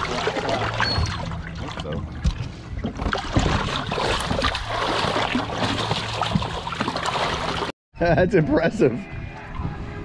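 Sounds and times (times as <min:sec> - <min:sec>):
water splashing at boat side: 0:00.0 - 0:07.7.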